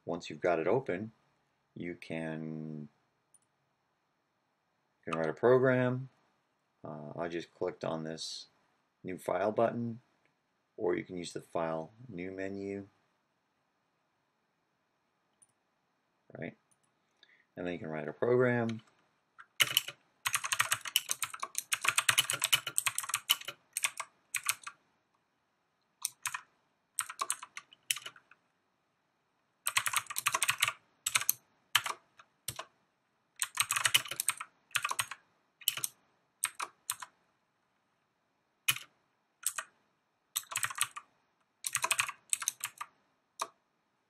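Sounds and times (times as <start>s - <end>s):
typing on computer keyboard: 18.7s - 24.8s, 26.0s - 28.4s, 29.6s - 32.7s, 33.4s - 37.1s, 38.7s - 39.7s, 40.4s - 43.6s.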